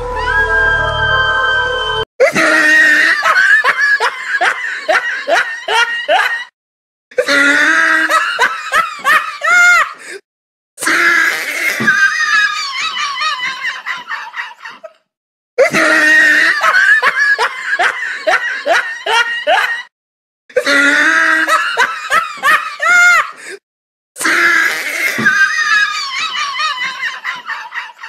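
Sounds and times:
person laughing hard: 2.2s - 6.5s, 7.2s - 10.0s, 15.6s - 19.9s, 20.6s - 23.4s, 24.4s - 28.0s.

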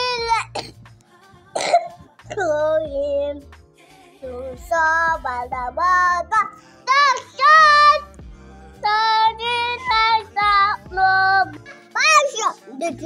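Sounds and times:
girl singing: 0.0s - 8.2s, 8.8s - 13.0s.

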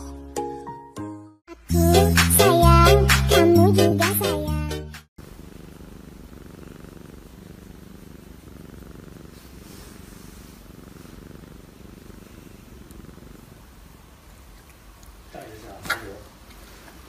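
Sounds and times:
cat purring: 5.2s - 17.0s.

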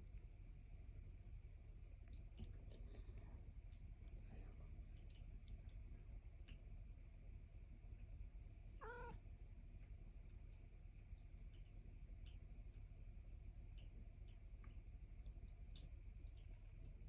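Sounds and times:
cat meowing: 8.8s - 9.2s.

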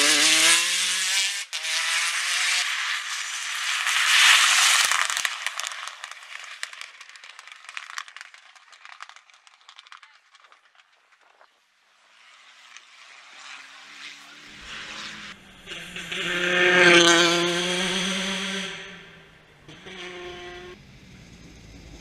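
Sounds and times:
rally car passing on gravel: 0.0s - 11.2s, 12.1s - 22.0s
stones clicking and rattling: 4.3s - 11.0s.

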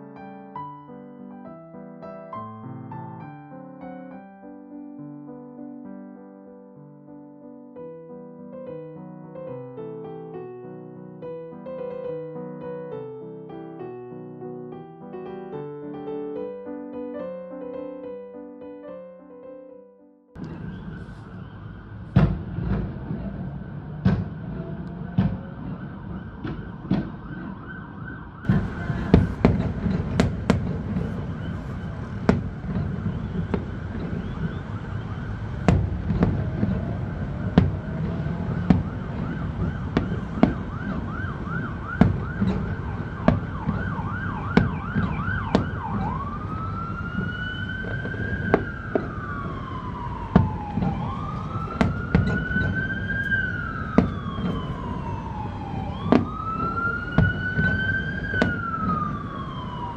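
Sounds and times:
fireworks banging: 20.4s - 27.5s, 28.4s - 59.9s
city traffic hum: 20.4s - 59.9s
emergency vehicle siren: 20.4s - 59.9s.

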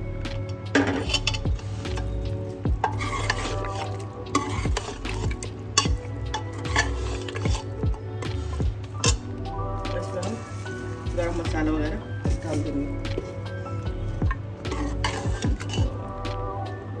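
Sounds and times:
ladle stirring wet gravy: 0.8s - 9.2s, 13.1s - 16.2s
ladle clinking against metal pot: 2.8s - 7.8s, 14.2s - 15.9s.

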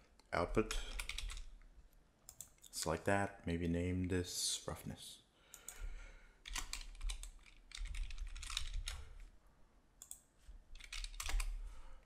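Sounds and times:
typing on computer keyboard: 0.8s - 1.5s, 6.4s - 9.2s, 10.8s - 11.6s.

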